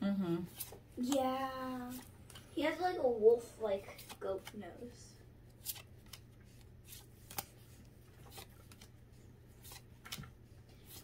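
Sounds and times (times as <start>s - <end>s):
trading cards swishing and snapping: 0.5s - 1.3s, 3.8s - 4.6s, 5.5s - 11.0s.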